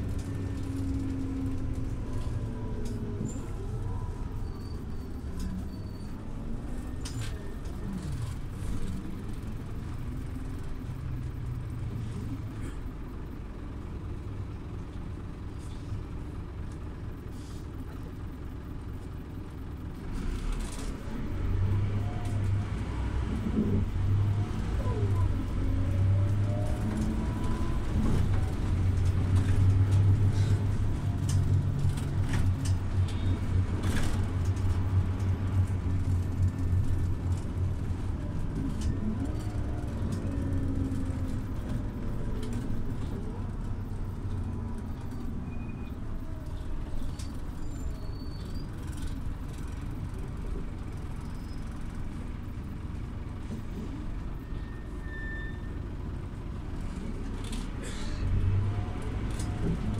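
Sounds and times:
bus engine running: 0:00.0 - 0:59.9.

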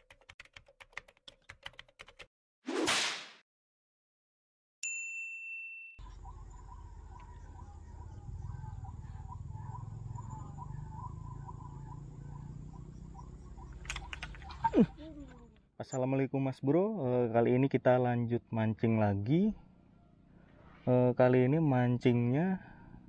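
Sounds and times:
bell-like ding: 0:04.8 - 0:06.0
chirping animal calls: 0:06.0 - 0:15.6.

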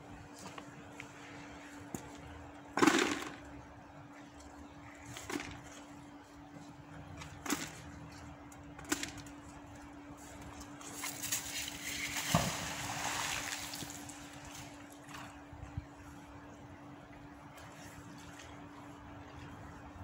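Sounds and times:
river water splashing: 0:11.3 - 0:14.6.

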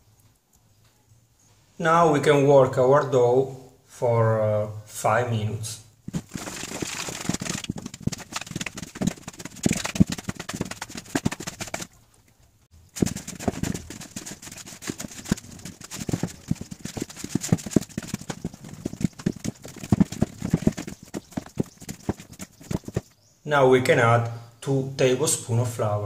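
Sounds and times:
dough slapping in plastic bowl: 0:06.1 - 0:11.9, 0:13.0 - 0:23.1.

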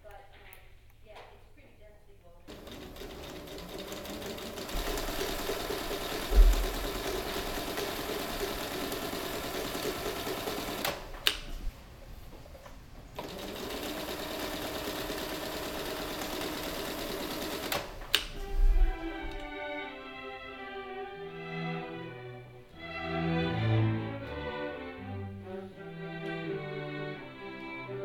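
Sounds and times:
small machine rattling: 0:02.5 - 0:11.1, 0:13.2 - 0:18.4
loud low thump: 0:06.3 - 0:06.9.

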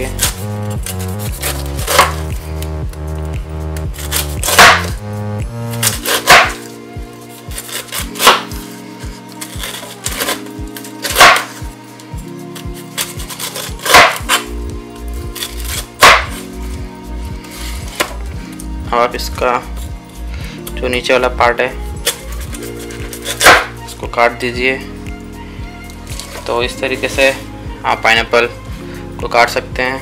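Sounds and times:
background music with held notes: 0:00.0 - 0:30.0
blade striking cutting board: 0:00.2 - 0:02.4, 0:04.0 - 0:05.0, 0:05.8 - 0:06.7, 0:07.6 - 0:08.7, 0:11.0 - 0:11.6, 0:13.0 - 0:14.5, 0:15.4 - 0:16.4, 0:17.9 - 0:18.2, 0:22.0 - 0:23.7
knife slicing pineapple peel: 0:00.2 - 0:02.4, 0:04.0 - 0:04.9, 0:05.8 - 0:06.7, 0:07.3 - 0:11.7, 0:12.6 - 0:14.5, 0:15.4 - 0:16.4, 0:22.1 - 0:23.7.

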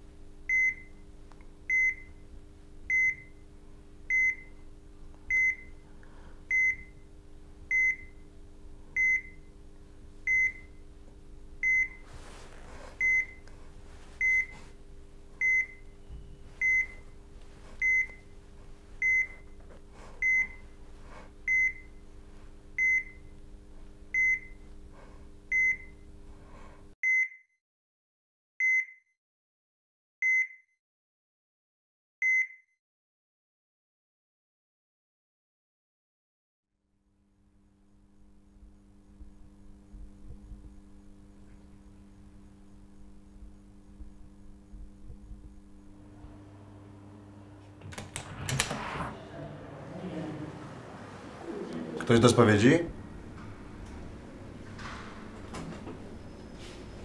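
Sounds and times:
low hum of room equipment: 0:00.0 - 0:27.0, 0:37.0 - 0:57.0
heart monitor beeping: 0:00.5 - 0:01.0, 0:01.7 - 0:02.2, 0:02.9 - 0:03.4, 0:04.1 - 0:04.6, 0:05.3 - 0:05.8, 0:06.5 - 0:07.0, 0:07.7 - 0:08.2, 0:09.0 - 0:09.5, 0:10.2 - 0:10.8, 0:11.6 - 0:13.5, 0:14.1 - 0:14.8, 0:15.4 - 0:18.4, 0:19.0 - 0:22.0, 0:22.8 - 0:23.3, 0:24.1 - 0:26.1.

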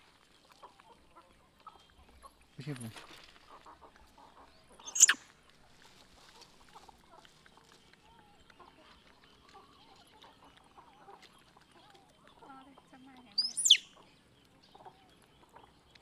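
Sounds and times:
chickens clucking: 0:00.5 - 0:13.3
sharp high-pitched squeak: 0:04.8 - 0:05.2.

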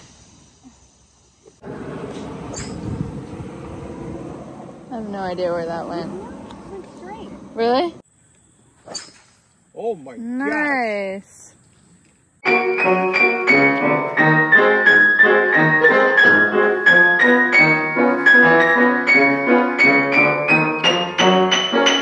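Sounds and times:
piano chords and melody: 0:12.4 - 0:22.0.

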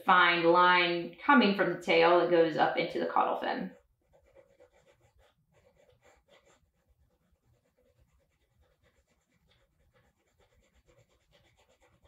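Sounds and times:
pencil scratching on paper: 0:03.7 - 0:12.0.

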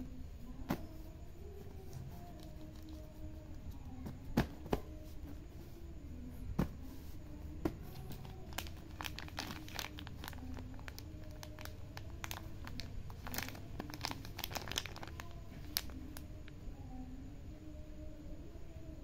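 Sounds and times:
plastic bag crinkling: 0:08.0 - 0:16.0.

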